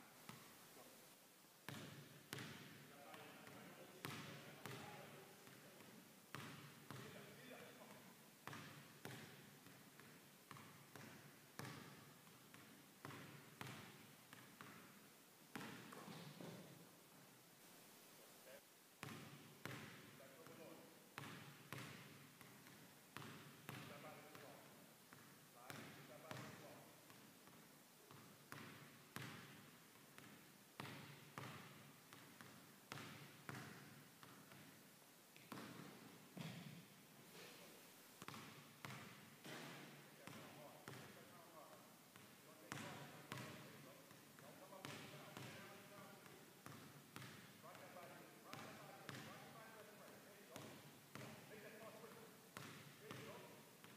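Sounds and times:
basketball bouncing on hardwood: 1.7s - 2.8s, 3.4s - 4.8s, 6.3s - 7.0s, 8.4s - 14.9s, 15.5s - 16.6s, 19.0s - 20.0s, 21.2s - 24.4s, 25.1s - 34.7s, 35.4s - 36.8s, 38.2s - 41.1s, 42.2s - 44.2s, 46.2s - 47.5s, 48.5s - 49.3s, 52.6s - 53.9s.

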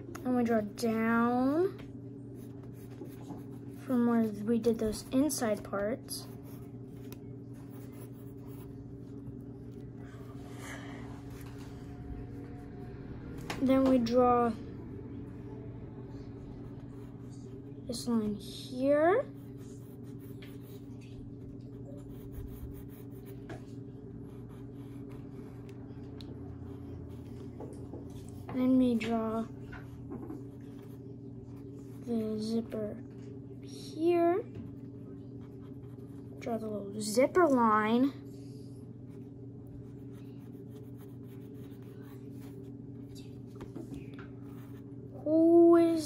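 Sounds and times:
steady low hum: 0.0s - 46.0s
pencil scratching on paper: 2.4s - 5.4s, 6.1s - 9.2s, 19.2s - 25.8s, 35.4s - 36.6s, 39.9s - 42.7s.

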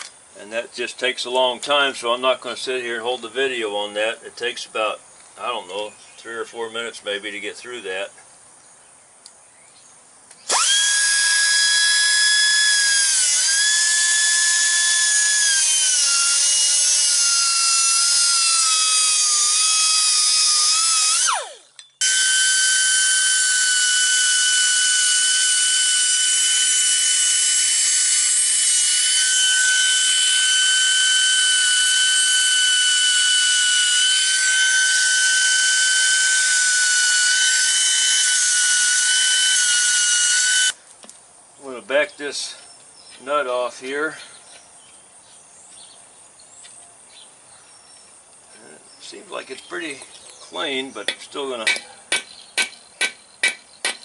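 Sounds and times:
air cutoff wheel cutting steel: 10.5s - 40.8s.

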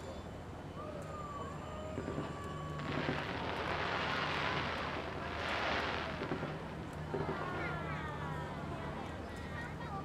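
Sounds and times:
fireworks crackling: 2.0s - 7.8s.

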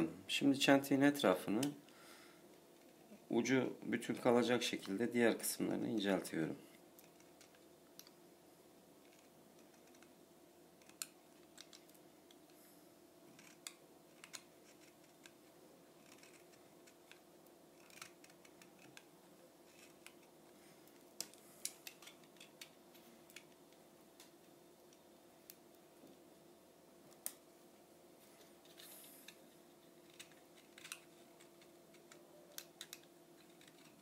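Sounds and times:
faint steady hum: 0.0s - 34.0s
blade shaving wooden skewer: 13.3s - 20.3s, 28.7s - 34.0s.

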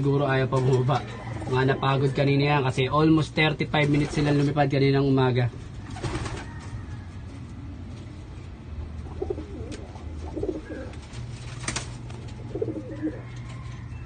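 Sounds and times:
low steady hum: 0.0s - 14.0s
pigeons cooing: 0.5s - 2.4s, 5.6s - 14.0s.

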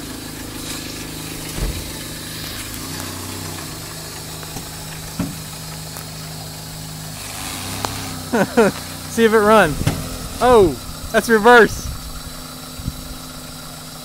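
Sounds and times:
car engine idling: 0.0s - 14.0s.

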